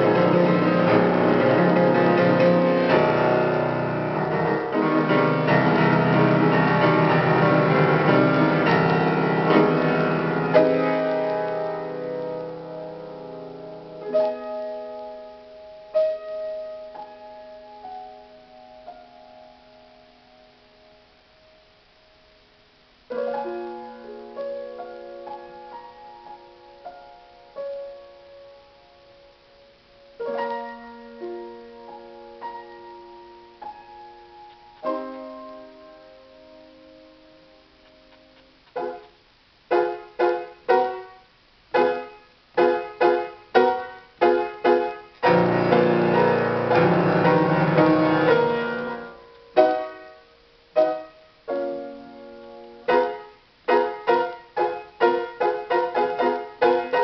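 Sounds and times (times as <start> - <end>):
solo piano: 0.0 - 57.0.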